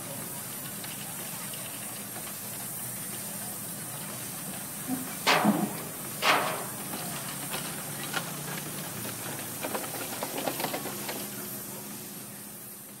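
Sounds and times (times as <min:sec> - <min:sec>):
steady low hum: 0:05.2 - 0:07.2
machinery clanks and ticks: 0:05.2 - 0:11.2
steam venting burst: 0:05.3 - 0:07.0.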